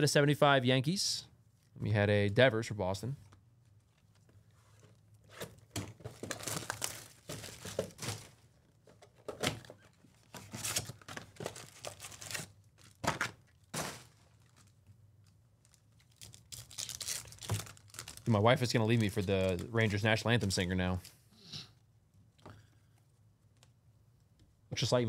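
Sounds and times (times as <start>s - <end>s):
foil packs crinkling: 6.0s - 8.4s, 9.7s - 14.9s, 15.6s - 20.2s.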